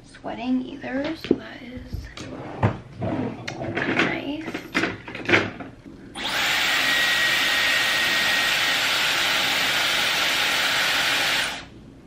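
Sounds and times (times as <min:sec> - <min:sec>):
hair styler blowing air: 0:06.2 - 0:11.7.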